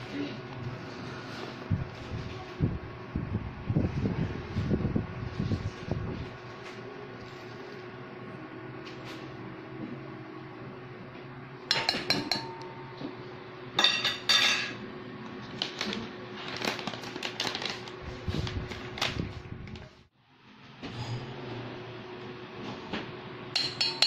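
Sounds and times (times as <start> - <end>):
metal spoon clinking on steel bowl: 11.7 - 12.7, 23.6 - 24.0.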